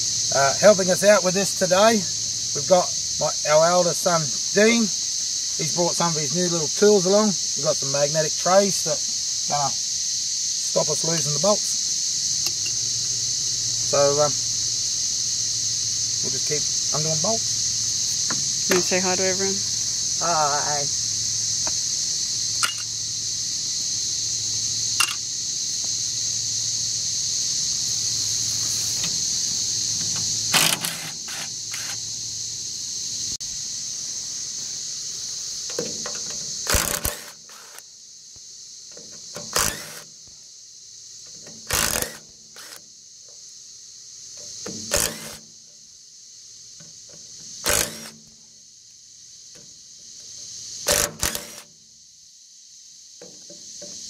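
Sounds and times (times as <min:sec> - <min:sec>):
impact wrench hammering: 0:22.6 - 0:22.9, 0:25.0 - 0:25.2, 0:35.8 - 0:37.4, 0:44.7 - 0:45.4, 0:47.7 - 0:48.1, 0:50.9 - 0:51.6.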